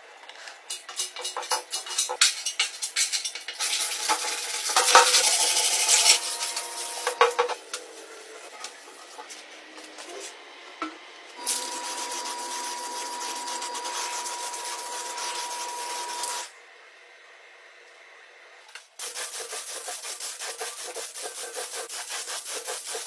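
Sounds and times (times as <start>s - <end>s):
sanding block rubbing metal: 3.6s - 7.4s, 11.4s - 16.5s, 19.0s - 23.0s.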